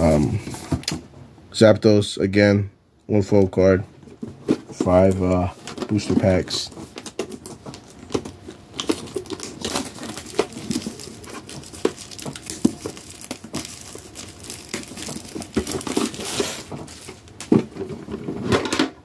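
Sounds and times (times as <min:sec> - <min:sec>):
plastic packaging crinkling and tearing: 0:04.7 - 0:18.0.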